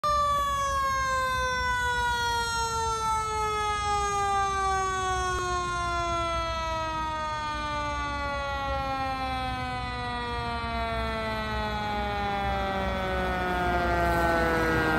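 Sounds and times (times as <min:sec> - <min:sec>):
low traffic rumble: 0:00.0 - 0:14.9
siren sliding down in pitch: 0:00.0 - 0:14.9.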